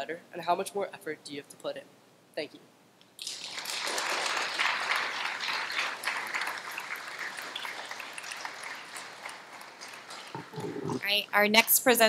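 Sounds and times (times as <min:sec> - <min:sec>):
audience applauding: 0:03.2 - 0:11.1.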